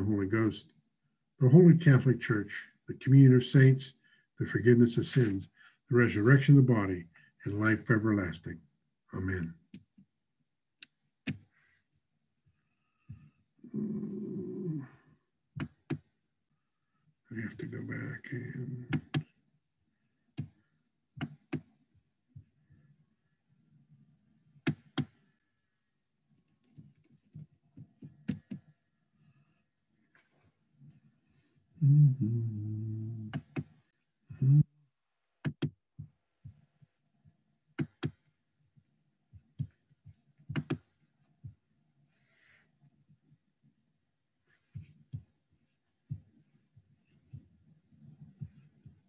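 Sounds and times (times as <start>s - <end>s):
person humming: 13.6s - 14.9s, 31.8s - 33.4s, 34.3s - 34.7s.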